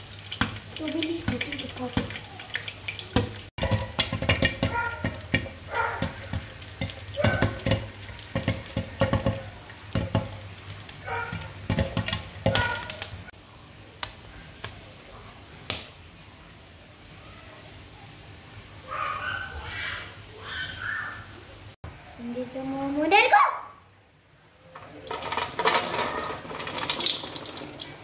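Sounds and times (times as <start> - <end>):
popcorn kernels popping: 0.0 - 13.3, 24.8 - 28.0.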